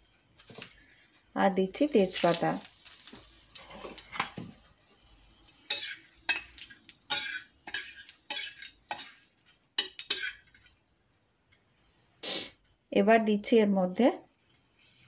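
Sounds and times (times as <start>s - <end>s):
faint sizzle: 0.0s - 15.0s
metal spatula scraping pan: 5.7s - 6.5s, 7.1s - 10.7s.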